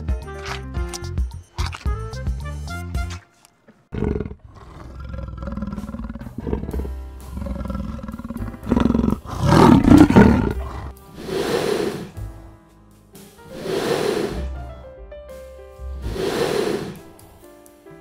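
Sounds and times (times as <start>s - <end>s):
background music: 0.0s - 3.5s, 5.5s - 18.0s
large animal roaring: 3.9s - 12.2s, 13.5s - 14.9s, 16.0s - 17.1s.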